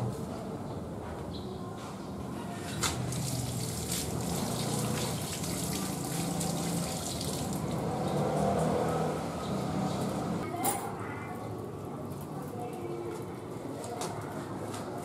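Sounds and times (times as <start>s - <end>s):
running water: 2.8s - 8.6s.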